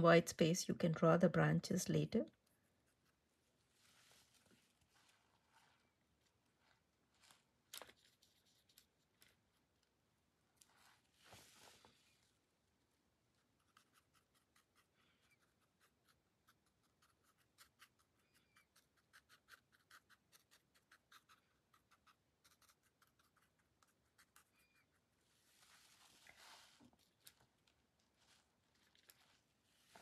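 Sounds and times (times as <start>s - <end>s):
soft rustle: 2.9s - 9.7s, 10.5s - 12.5s, 25.2s - 30.0s.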